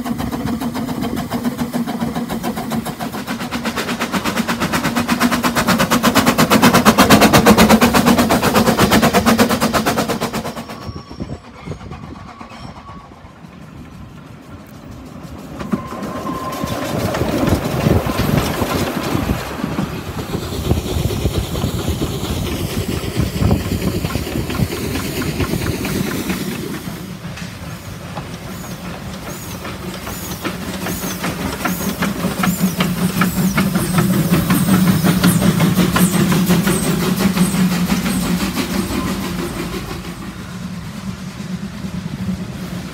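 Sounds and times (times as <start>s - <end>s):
steam hiss: 0.0s - 42.9s
steam locomotives passing: 0.0s - 42.9s
wheels clattering on rails: 0.0s - 42.9s.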